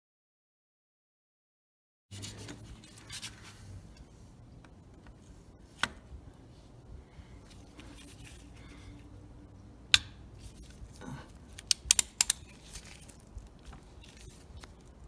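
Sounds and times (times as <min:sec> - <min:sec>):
wrench metal clicks: 0:11.5 - 0:12.9.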